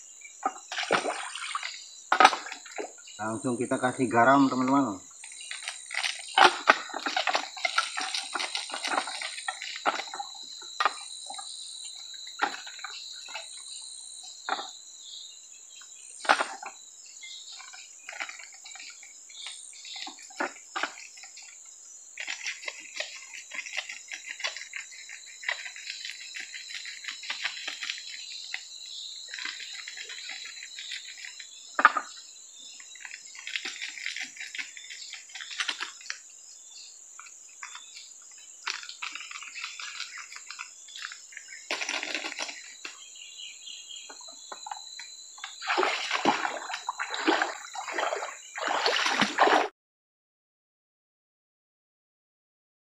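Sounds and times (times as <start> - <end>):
insects droning: 0.0 - 49.7
water splashing: 0.4 - 3.0, 45.5 - 49.7.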